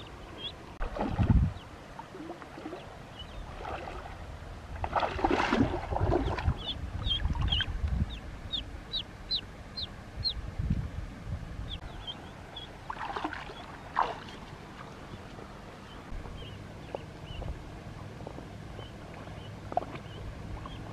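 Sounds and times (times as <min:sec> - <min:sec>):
ducklings peeping: 0:00.0 - 0:00.7, 0:01.5 - 0:03.5, 0:06.1 - 0:10.5, 0:11.6 - 0:14.0, 0:15.0 - 0:20.9
water splashing around wading legs: 0:00.8 - 0:01.4, 0:03.5 - 0:04.2, 0:04.8 - 0:07.7, 0:12.8 - 0:15.4, 0:19.0 - 0:20.9.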